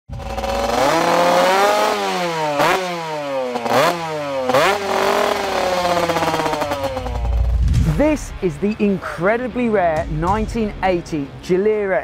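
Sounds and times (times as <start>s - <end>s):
two-stroke engine revving: 0.1s - 8.7s.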